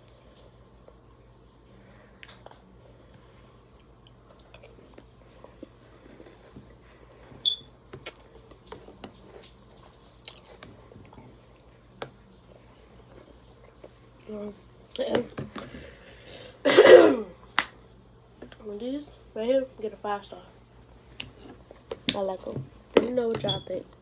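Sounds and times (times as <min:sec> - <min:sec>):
chewing crunchy cereal: 0:03.5 - 0:07.3, 0:08.0 - 0:11.6.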